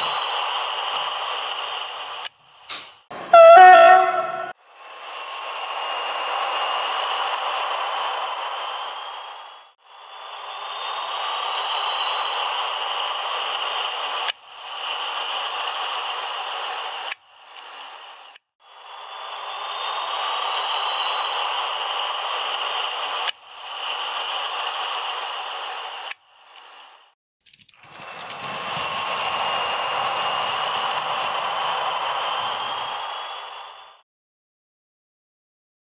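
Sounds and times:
model train motor whining: 0.0 - 34.0
wheels clattering over rails: 27.5 - 33.0.

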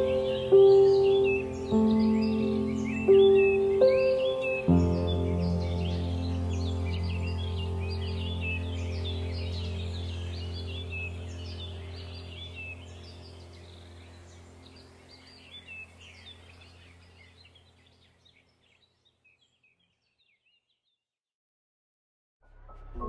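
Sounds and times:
music: 0.0 - 14.8, 22.4 - 23.0
low steady drone: 0.0 - 17.2
birds chirping: 0.0 - 21.0.

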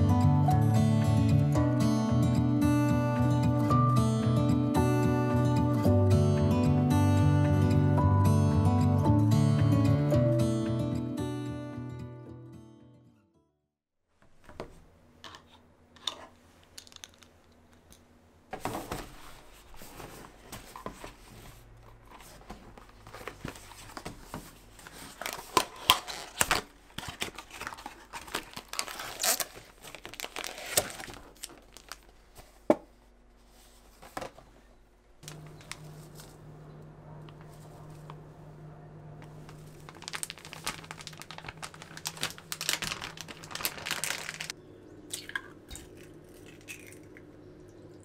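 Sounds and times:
packaging tearing and crinkling: 25.1 - 32.2, 39.5 - 44.6
low hum: 35.2 - 48.0.

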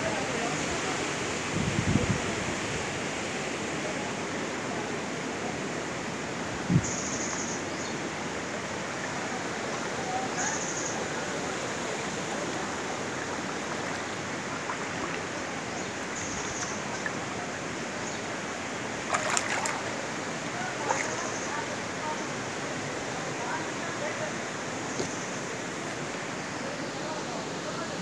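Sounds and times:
floodwater rushing: 8.0 - 26.3.

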